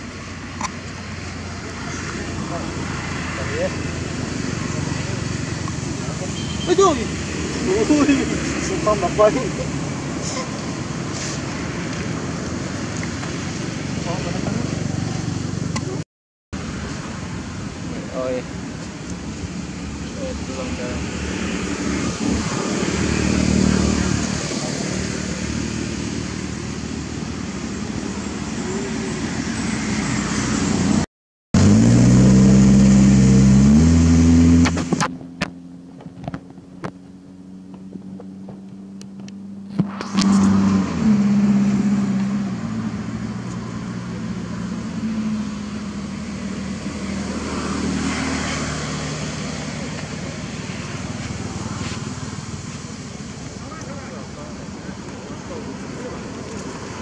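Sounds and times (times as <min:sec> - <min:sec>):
outdoor background noise: 0:00.0 - 0:57.0
vehicle engine revving: 0:20.2 - 0:31.0, 0:31.6 - 0:57.0.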